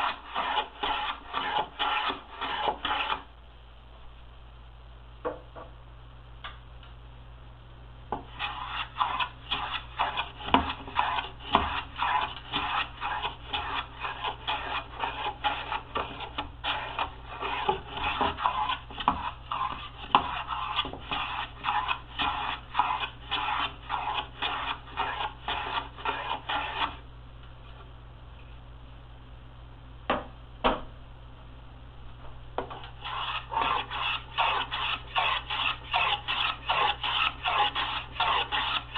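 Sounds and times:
hand plane swishing on wood: 0:00.0 - 0:03.2, 0:08.4 - 0:27.0, 0:33.0 - 0:38.9.

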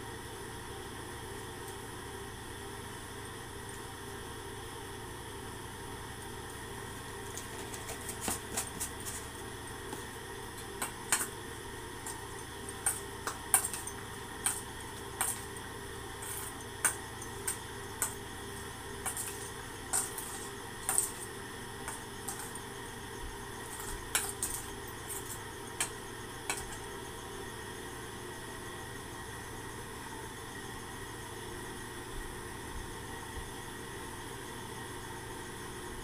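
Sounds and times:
steady background hum: 0:00.0 - 0:36.0
metal spoon clinking on steel bowl: 0:10.6 - 0:11.3, 0:12.0 - 0:15.6, 0:19.0 - 0:22.6, 0:23.7 - 0:26.8.

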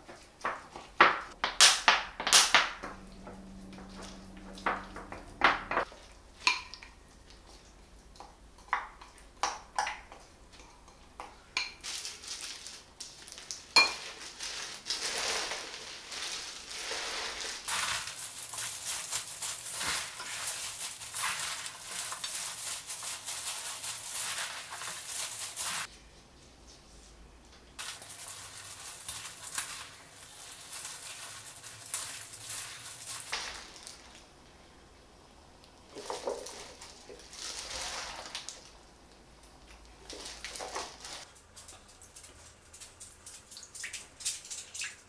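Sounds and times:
cabbage leaves rustling and crunching: 0:11.8 - 0:25.9, 0:27.8 - 0:34.2, 0:36.0 - 0:38.7, 0:40.0 - 0:41.3.

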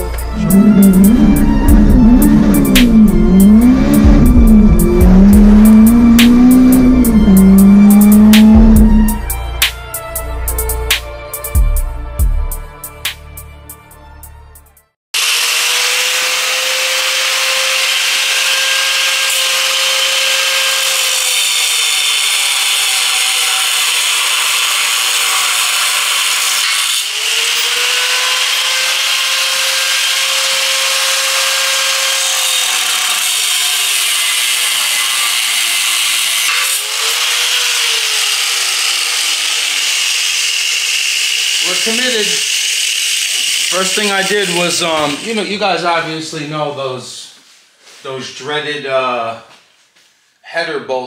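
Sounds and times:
angle grinder cutting steel: 0:00.0 - 0:09.4, 0:15.2 - 0:45.6.

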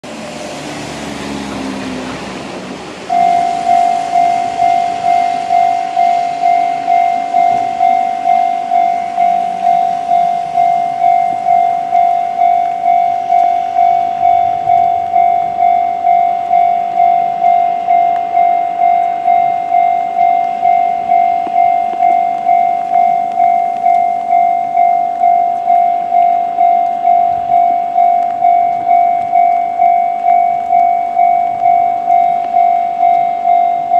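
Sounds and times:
car passing on wet road: 0:00.0 - 0:33.9
level-crossing bell ringing: 0:03.1 - 0:33.9.

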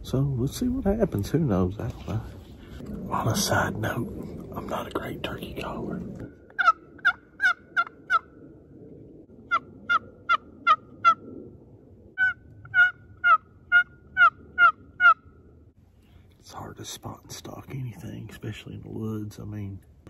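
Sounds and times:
turkey call yelps: 0:06.5 - 0:08.3, 0:09.5 - 0:11.2, 0:12.2 - 0:15.3.

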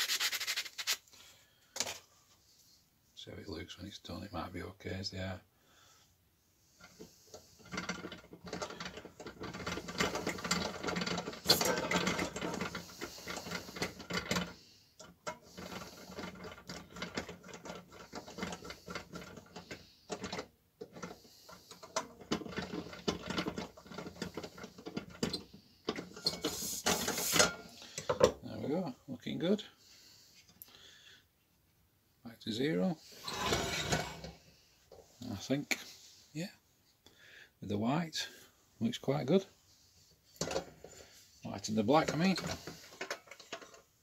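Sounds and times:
metal scraping on metal: 0:06.7 - 0:14.6, 0:15.2 - 0:27.7, 0:33.0 - 0:34.4.

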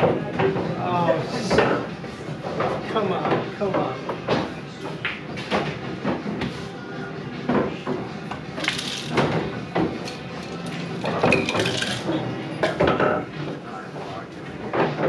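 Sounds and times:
glasses clinking and knocking: 0:11.1 - 0:13.3.

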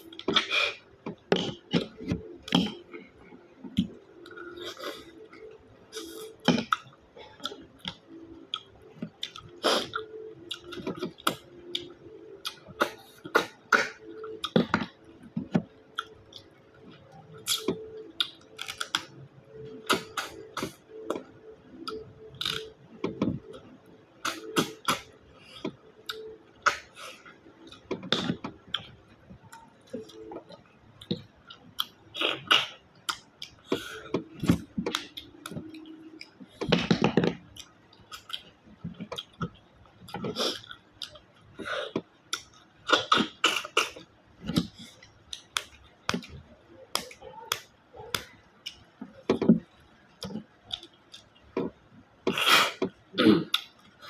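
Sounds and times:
chewing: 0:24.2 - 0:54.0.

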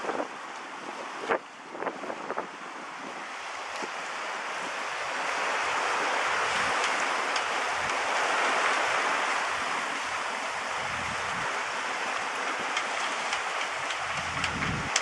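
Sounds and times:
water rushing along boat hull: 0:00.0 - 0:15.0
wind: 0:00.0 - 0:15.0
faint ticks: 0:06.8 - 0:08.0, 0:12.1 - 0:15.0.

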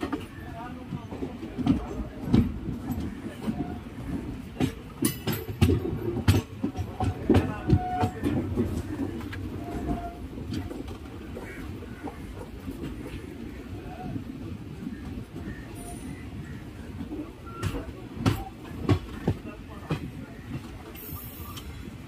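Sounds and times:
wheels clattering over rail joints: 0:00.0 - 0:13.7
train rumbling on rails: 0:00.0 - 0:22.0.

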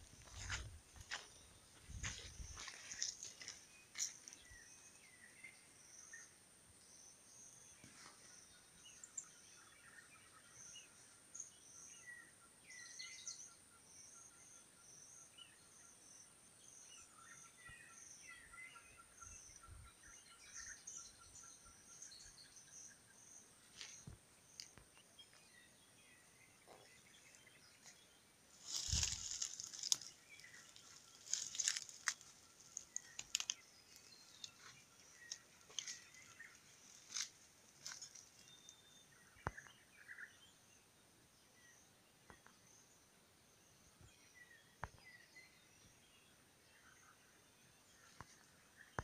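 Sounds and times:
twigs and leaves crunching underfoot: 0:00.0 - 0:04.8, 0:23.7 - 0:25.5, 0:26.6 - 0:38.8.

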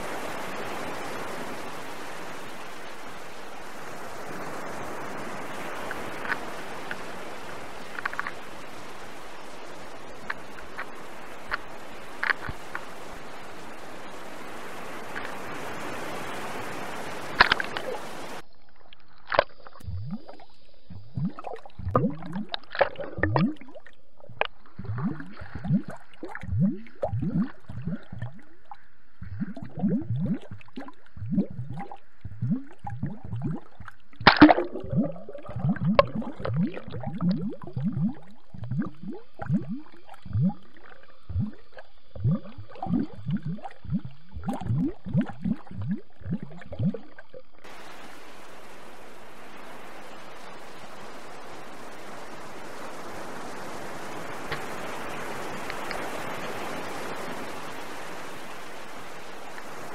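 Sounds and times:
underwater gurgling and bubbling: 0:16.7 - 0:48.8.

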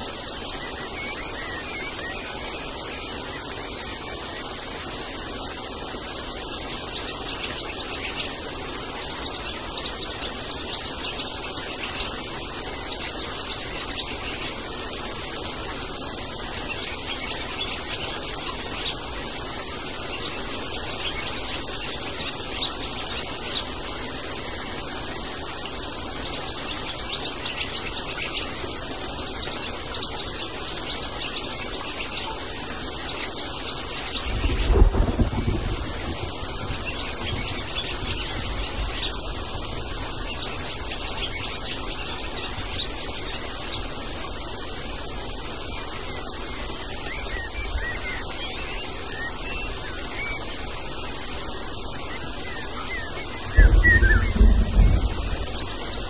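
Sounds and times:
rain on foliage: 0:00.0 - 0:56.0
low roll of thunder: 0:34.3 - 0:37.7, 0:53.4 - 0:56.0.

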